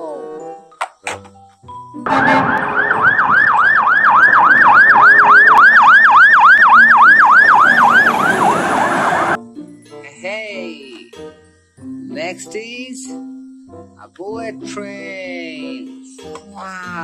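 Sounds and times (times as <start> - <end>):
engine and road noise: 2.0 - 9.4
fire engine siren yelping: 2.0 - 9.4.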